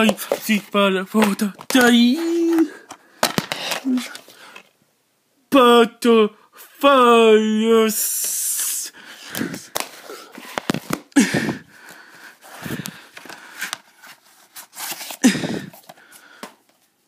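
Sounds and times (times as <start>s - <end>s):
person's vocal sounds: 0.0s - 2.9s, 3.6s - 4.3s, 6.9s - 10.4s, 11.1s - 11.7s, 15.2s - 15.8s.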